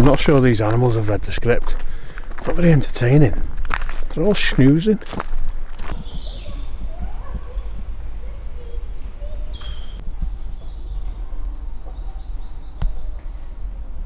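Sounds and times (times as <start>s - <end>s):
birds chirping: 4.0s - 14.0s.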